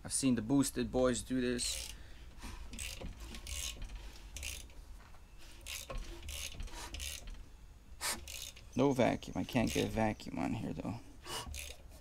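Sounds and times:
mechanical rubbing of pistons: 0:01.6 - 0:12.0
air hissing past a palm: 0:08.0 - 0:08.4.

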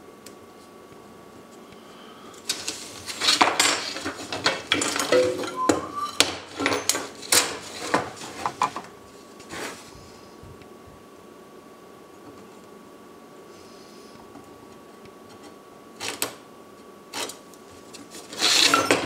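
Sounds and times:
wooden strips clacking on workbench: 0:02.5 - 0:08.9
metal tools clinking: 0:03.2 - 0:08.0, 0:18.4 - 0:19.0
metal ringing: 0:04.9 - 0:07.1.

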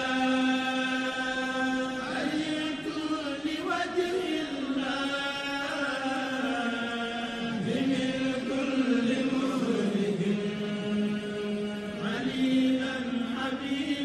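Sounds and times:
person chanting long gliding notes: 0:00.0 - 0:14.0.

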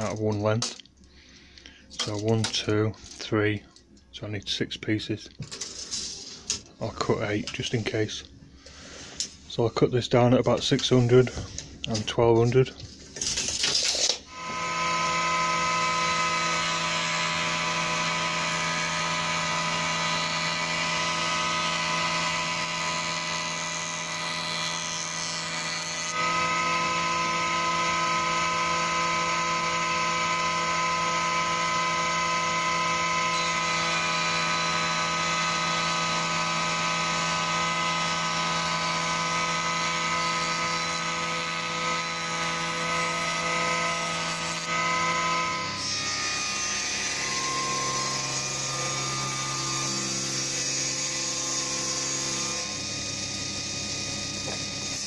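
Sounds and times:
surface planer running: 0:14.3 - 0:55.0.

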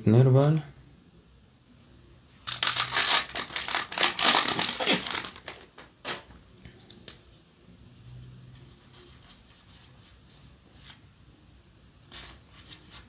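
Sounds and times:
foil wrapper tearing and crinkling: 0:02.4 - 0:05.8.

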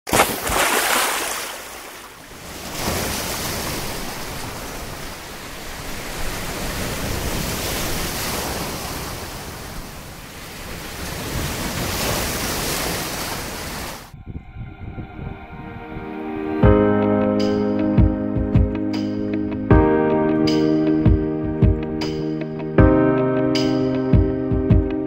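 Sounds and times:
sea surf breaking: 0:00.1 - 0:14.2.

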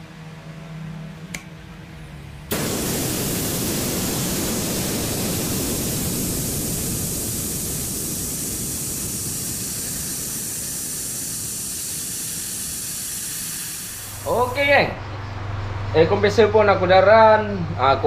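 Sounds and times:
compressed air hissing from valve: 0:02.5 - 0:15.0.

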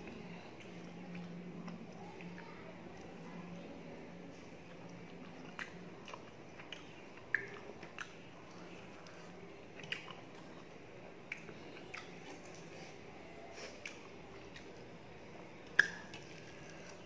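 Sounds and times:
close-up chewing with wet smacking: 0:04.3 - 0:13.0, 0:13.6 - 0:17.0.

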